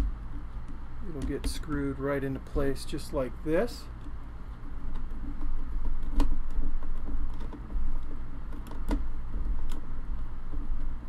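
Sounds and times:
handling knocks: 0:01.1 - 0:02.6.

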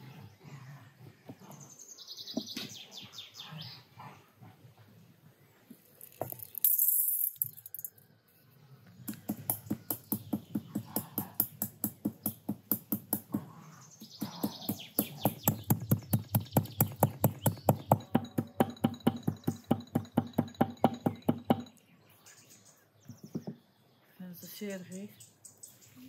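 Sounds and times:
stone pestle pounding metal mortar: 0:14.2 - 0:21.7.

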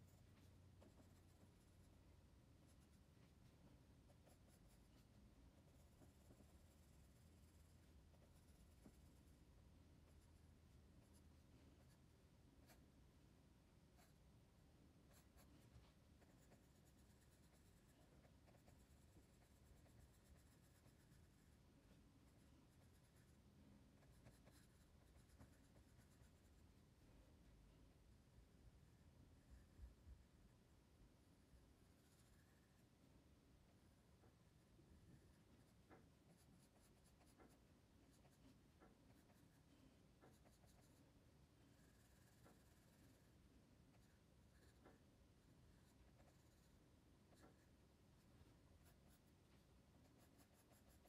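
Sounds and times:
pencil scratching on paper: 0:02.6 - 0:09.4, 0:10.0 - 0:12.0, 0:15.1 - 0:23.4, 0:24.0 - 0:26.8, 0:31.8 - 0:32.8, 0:35.2 - 0:45.0, 0:45.6 - 0:47.7, 0:48.3 - 0:51.0.

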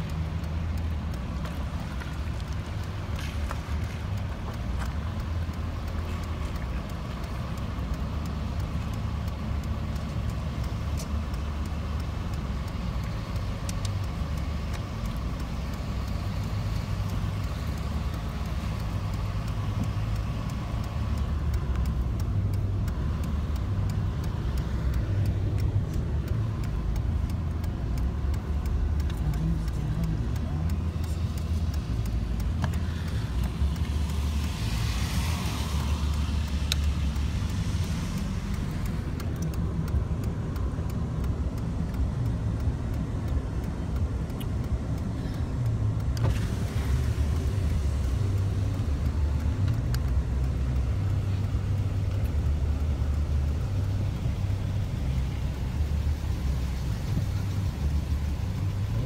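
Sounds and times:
vehicle engine and tyre rumble: 0:00.0 - 0:59.0.

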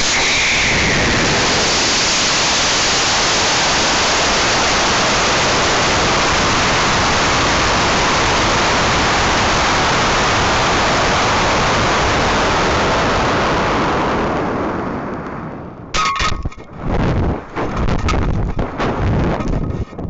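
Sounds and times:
sharp knocks and rattles: 0:16.0 - 0:20.0
air rushing past camera: 0:16.6 - 0:20.0.

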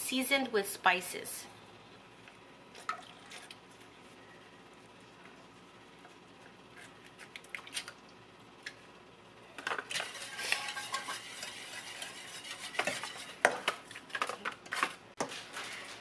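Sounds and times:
whisk scraping metal saucepan: 0:09.9 - 0:14.0.

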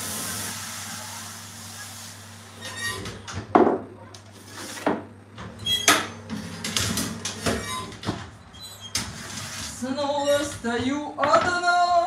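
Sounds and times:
metal baking tray scraping: 0:08.8 - 0:10.6.

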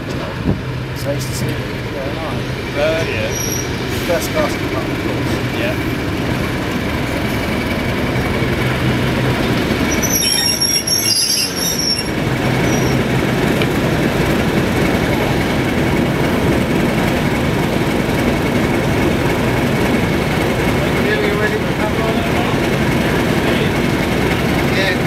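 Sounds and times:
diesel locomotive engine running: 0:00.0 - 0:25.0
wheels squealing: 0:01.9 - 0:25.0.

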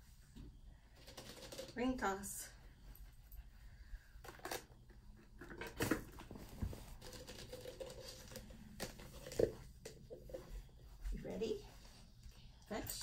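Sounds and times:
plastic rings rustling and clicking: 0:01.0 - 0:01.9, 0:05.4 - 0:10.5.

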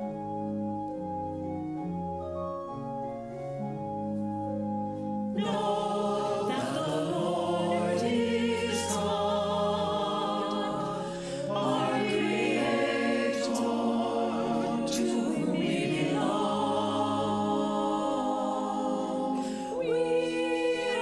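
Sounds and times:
choir singing sacred music: 0:05.3 - 0:21.0.

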